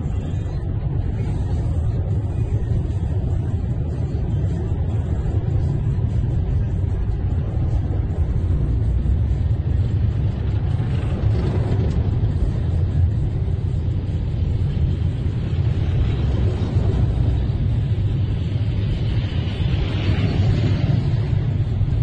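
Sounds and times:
road noise inside car: 0:00.0 - 0:22.0
vehicle engines rumbling: 0:00.0 - 0:22.0.

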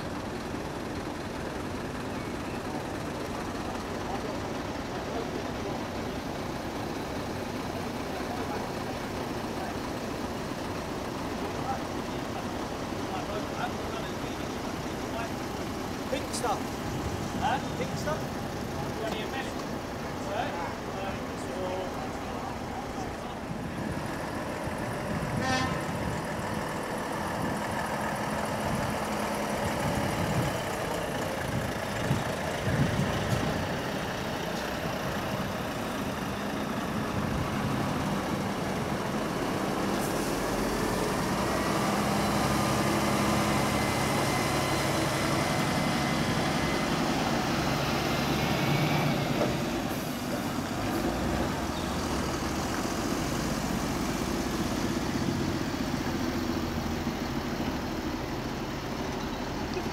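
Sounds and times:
truck diesel engines idling: 0:00.0 - 0:59.9
short horn toot: 0:25.4 - 0:26.0.

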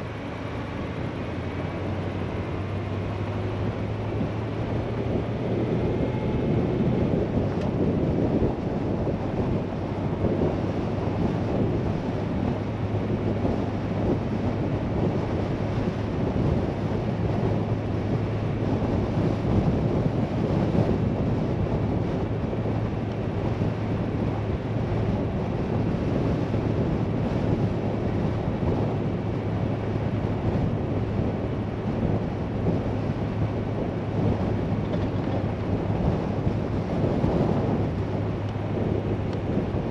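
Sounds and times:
vehicle driving on dirt road: 0:00.0 - 0:39.9.

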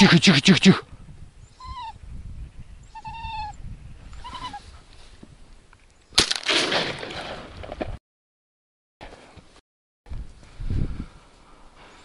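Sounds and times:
dog whining: 0:02.9 - 0:03.6, 0:04.2 - 0:04.6.

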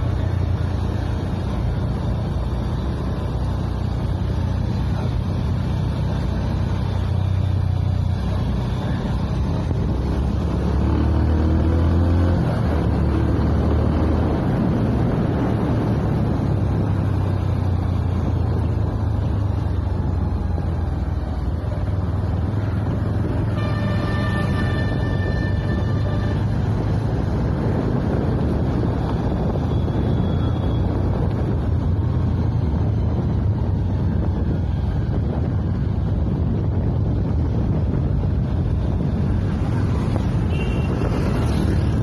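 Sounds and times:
wind rushing over microphone: 0:00.0 - 0:42.0.

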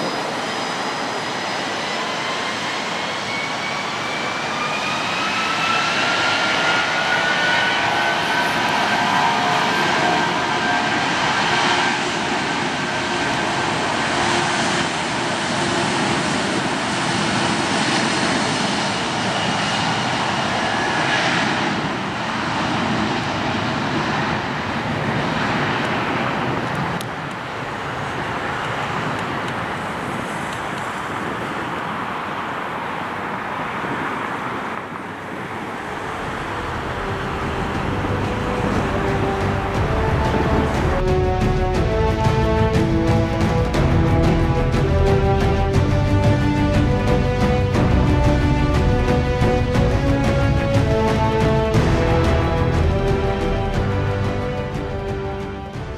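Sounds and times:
high jet whine: 0:00.0 - 0:55.9
jet engine roar: 0:00.0 - 0:55.9.

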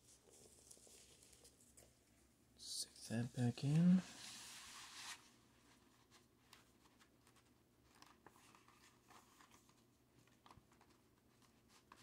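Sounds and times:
vinyl record sleeve rustling: 0:03.1 - 0:12.0.

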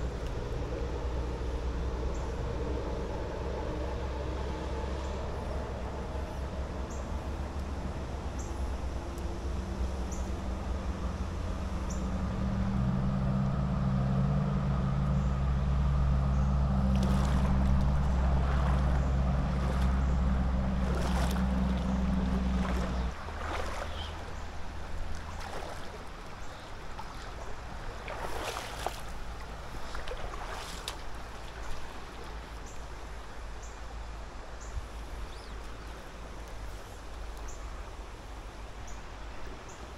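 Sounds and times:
low engine drone: 0:00.0 - 0:39.9
river water flowing: 0:00.0 - 0:39.9.

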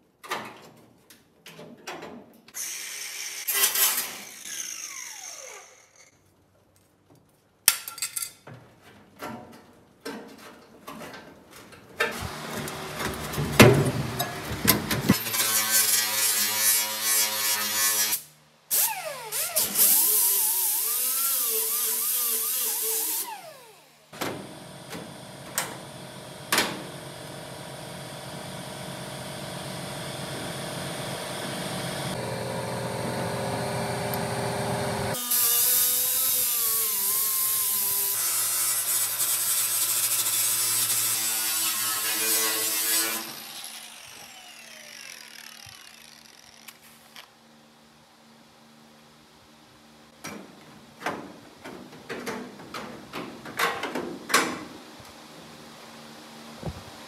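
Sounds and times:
grinder disc cutting sheet steel: 0:02.6 - 0:06.1, 0:12.1 - 0:23.7, 0:31.4 - 0:46.9.

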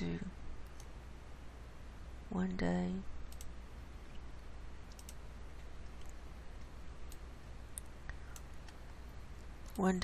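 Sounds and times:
low steady hum: 0:00.0 - 0:10.0
computer mouse clicks: 0:00.6 - 0:01.0, 0:03.3 - 0:08.8.

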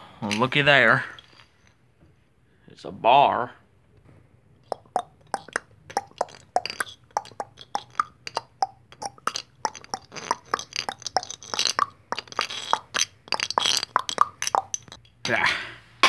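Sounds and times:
toy footstep clicks: 0:05.4 - 0:15.0.

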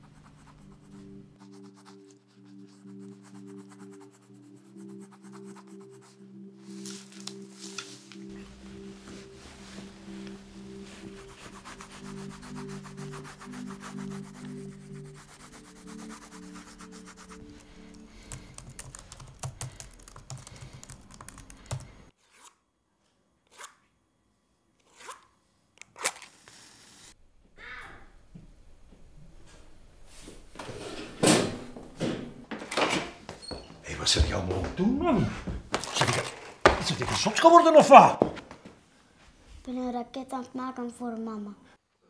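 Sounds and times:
soft music with low held notes: 0:00.0 - 0:19.8, 0:28.1 - 0:38.2
coloured pencils scratching on paper: 0:00.0 - 0:22.6
laptop keyboard typing: 0:15.8 - 0:22.1.

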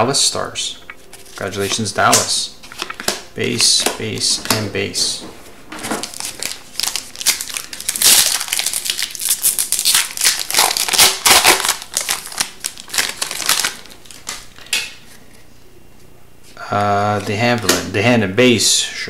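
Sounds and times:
foil wrapper crinkling: 0:01.1 - 0:01.9, 0:05.8 - 0:15.2.

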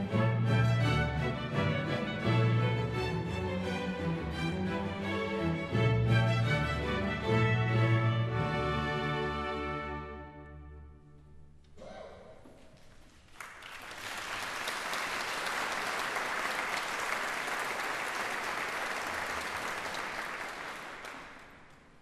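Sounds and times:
audience applause: 0:13.0 - 0:22.0.

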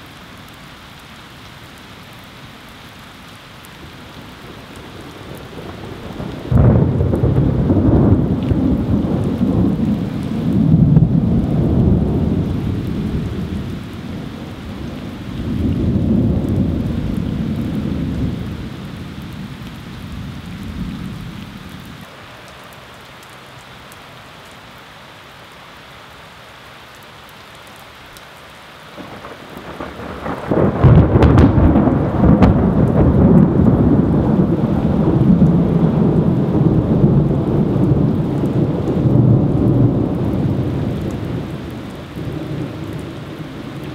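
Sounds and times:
heavy rain: 0:00.0 - 0:43.9
thunder rumbling: 0:04.5 - 0:21.9, 0:29.0 - 0:43.9
thunderclap: 0:05.5 - 0:12.5, 0:29.0 - 0:40.6.

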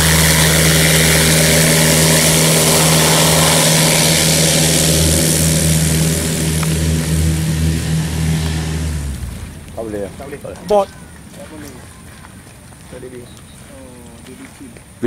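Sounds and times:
light aircraft engine drone: 0:00.0 - 0:12.0.

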